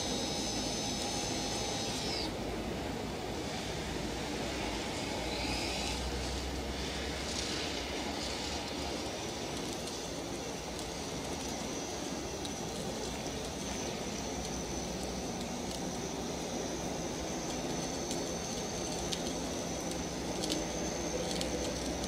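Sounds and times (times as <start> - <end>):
electric motor whirring: 0.0 - 2.4, 4.6 - 22.0
faint high whine: 0.0 - 22.0.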